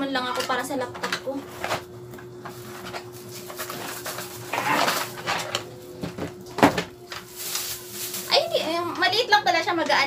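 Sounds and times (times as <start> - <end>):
cardboard and plastic rustling: 1.3 - 9.3.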